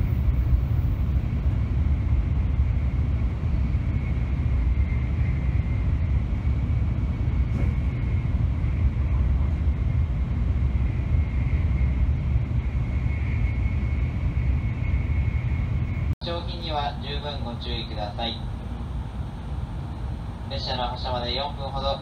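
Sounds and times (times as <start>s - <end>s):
faint high whine: 0.0s - 22.0s
train interior low rumble: 0.0s - 22.0s.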